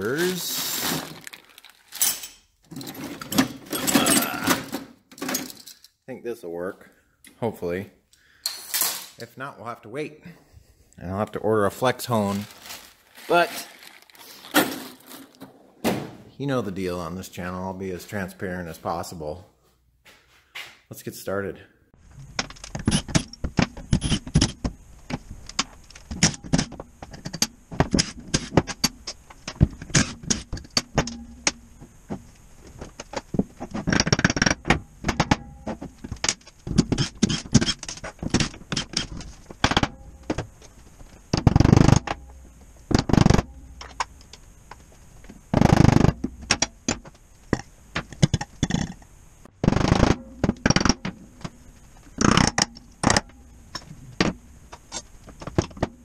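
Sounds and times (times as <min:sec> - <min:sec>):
tools clinking on steel workbench: 0:02.0 - 0:04.4.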